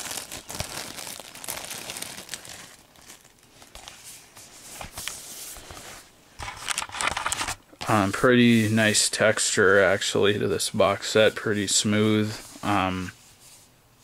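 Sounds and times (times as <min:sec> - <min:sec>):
plastic wrap crinkling and tearing: 0:00.0 - 0:04.0.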